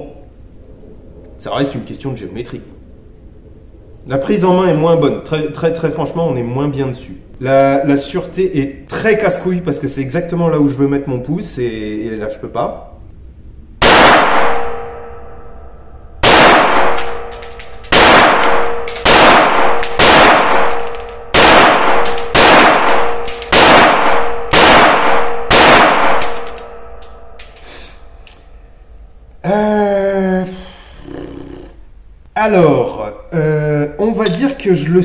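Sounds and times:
pistol shots with ringing decay: 13.8s - 15.4s, 16.2s - 27.4s.

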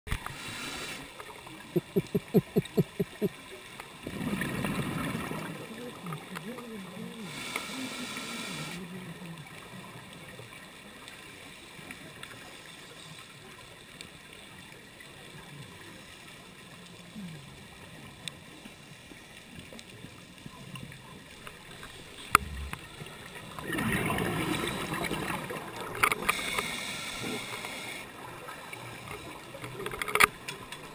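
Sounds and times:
muffled underwater ambience: 0.3s - 30.9s
diver's exhaled bubbles burbling: 1.7s - 3.4s, 4.0s - 5.6s, 22.2s - 25.9s.

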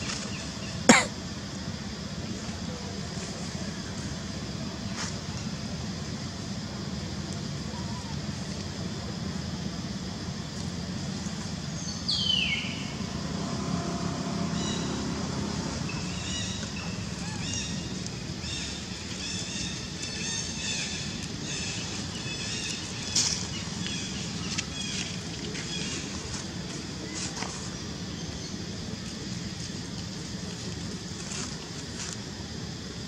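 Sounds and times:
steady low hum: 0.0s - 33.0s
birds chirping: 11.8s - 13.1s.

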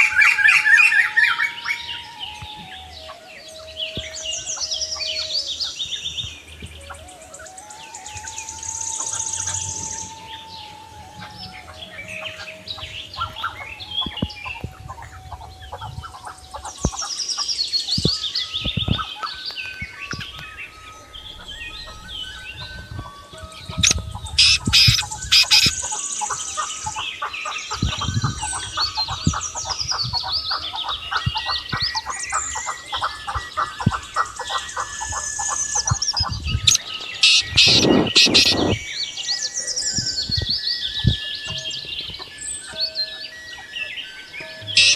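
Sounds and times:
small birds chirping and trilling: 0.0s - 44.9s
bird rapid repeated notes: 16.7s - 27.0s, 27.6s - 39.2s, 44.6s - 44.9s
loud harsh bird call: 19.6s - 36.1s, 36.7s - 40.0s, 42.2s - 44.9s.

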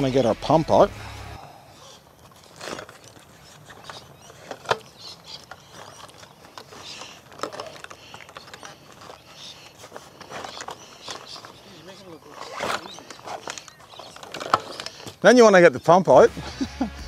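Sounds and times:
fabric bag rustling: 2.2s - 14.9s.

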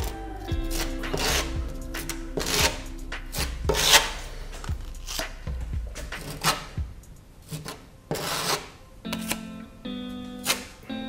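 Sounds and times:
spatula scraping filler on wall: 0.6s - 5.4s, 6.2s - 6.8s, 7.4s - 8.8s.

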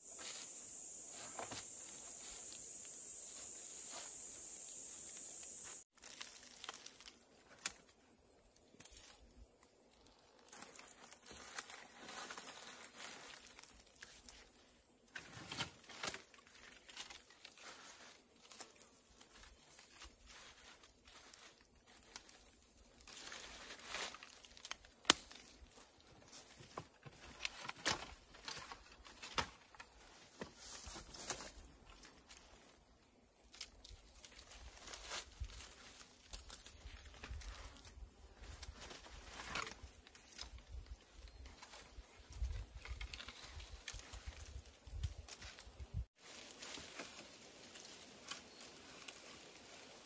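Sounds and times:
branches and leaves rustling: 0.0s - 50.0s
branches snapping and knocking: 6.0s - 8.0s, 23.1s - 25.6s, 26.6s - 30.5s.

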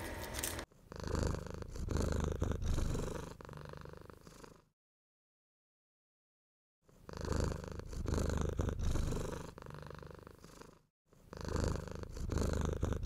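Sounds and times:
cat purring: 0.8s - 4.7s, 6.9s - 13.0s.

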